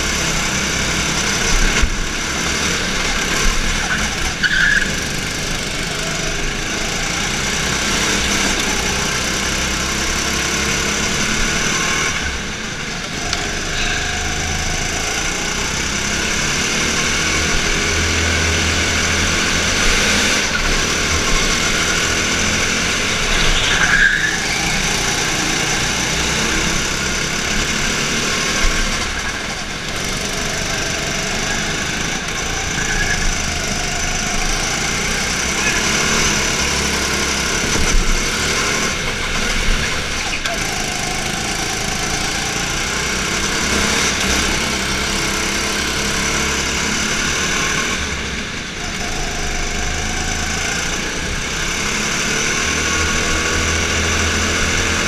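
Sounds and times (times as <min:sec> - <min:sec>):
go-kart engine racing: 0:00.0 - 0:55.0
other kart engines: 0:00.0 - 0:55.0
tyre squeals: 0:03.8 - 0:05.2, 0:23.0 - 0:25.5, 0:31.4 - 0:33.6.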